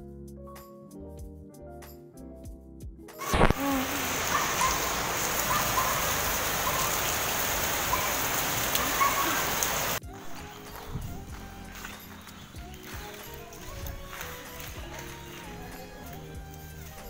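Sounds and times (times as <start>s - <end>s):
rain falling on water: 3.2s - 10.0s.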